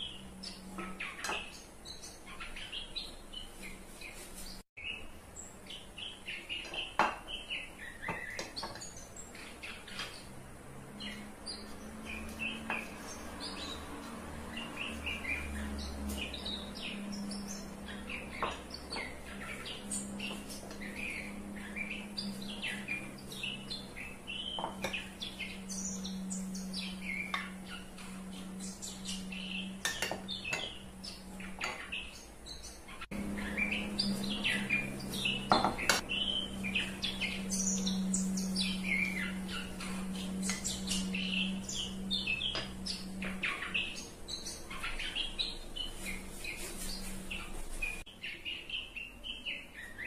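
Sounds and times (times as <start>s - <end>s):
birds chirping: 0.0s - 50.0s
steady low hum: 9.2s - 48.0s.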